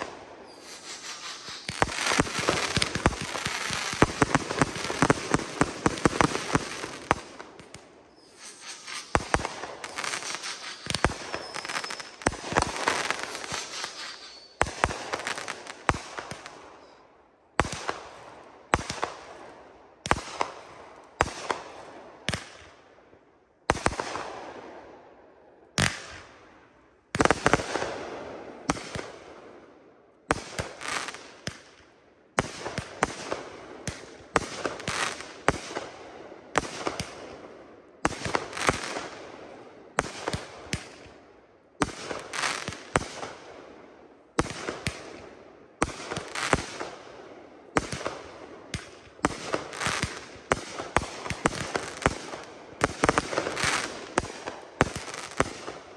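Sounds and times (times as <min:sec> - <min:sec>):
fireworks bangs: 0:00.0 - 0:16.9, 0:41.8 - 0:43.4, 0:47.7 - 0:55.8
fireworks crackle: 0:00.0 - 0:17.0, 0:32.4 - 0:35.9, 0:38.1 - 0:39.2, 0:41.8 - 0:43.4, 0:45.8 - 0:47.0, 0:47.8 - 0:55.9.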